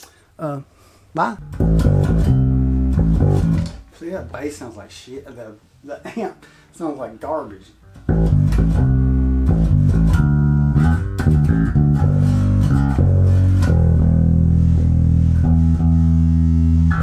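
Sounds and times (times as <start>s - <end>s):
finger-plucked electric bass: 1.4s - 3.9s, 7.8s - 17.0s.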